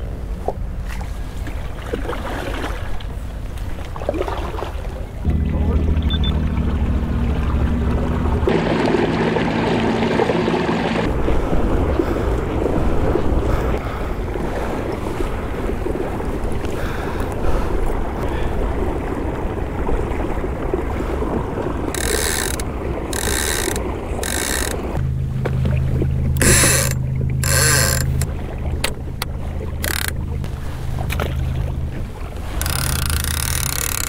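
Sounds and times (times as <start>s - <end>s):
water rushing along kayak hull: 0.0s - 34.0s
wind buffeting microphone: 5.2s - 27.4s.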